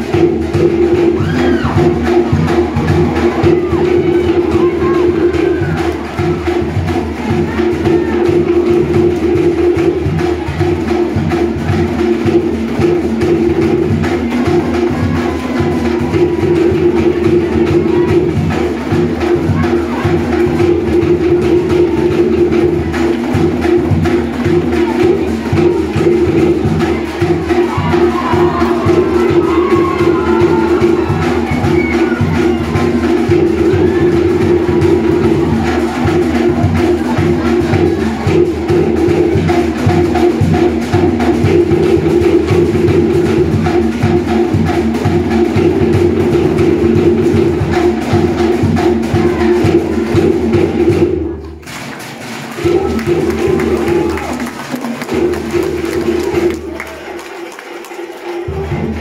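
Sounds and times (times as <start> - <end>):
fast drum-dance music: 0.0 - 59.0.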